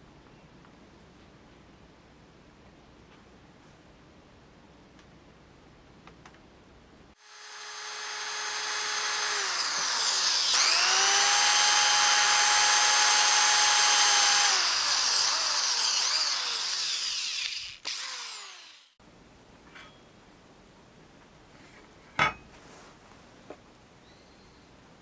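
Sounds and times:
electric drill boring metal: 7.2s - 19.0s.

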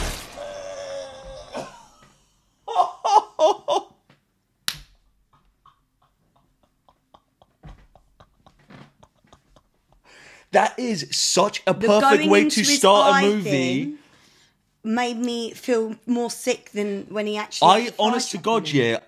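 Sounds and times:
person laughing: 0.5s - 4.0s, 5.6s - 10.1s, 12.0s - 13.7s.

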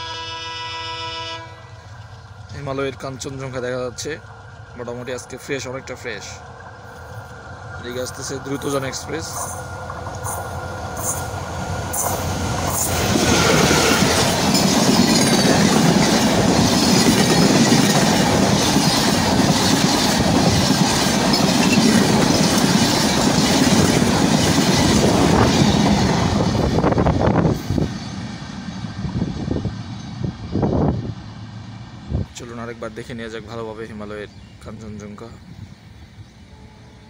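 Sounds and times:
train passing close by: 0.0s - 37.0s
train wheels clattering on rails: 1.9s - 28.4s.

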